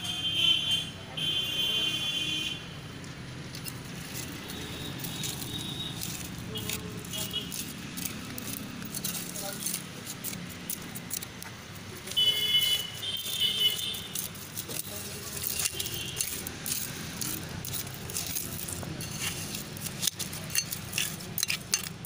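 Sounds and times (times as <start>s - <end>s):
stone chips rattling in metal bowl: 3.6s - 11.4s, 12.8s - 22.0s.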